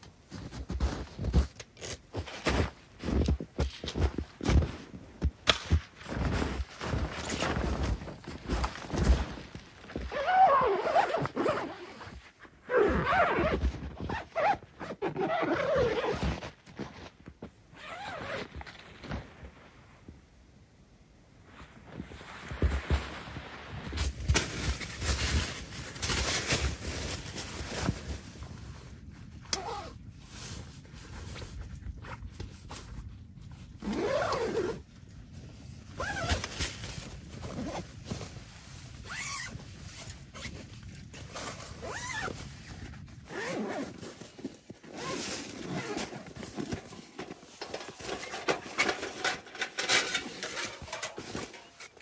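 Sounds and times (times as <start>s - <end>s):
soft bag handled: 0.2s - 19.8s, 24.8s - 52.0s
tent fabric rustling: 0.2s - 20.0s, 21.4s - 52.0s
gear shuffling: 0.3s - 19.1s, 33.8s - 34.8s, 39.0s - 52.0s
zipper: 6.2s - 17.1s, 17.7s - 19.3s, 29.4s - 34.9s, 36.0s - 36.5s, 37.3s - 38.3s, 39.0s - 52.0s.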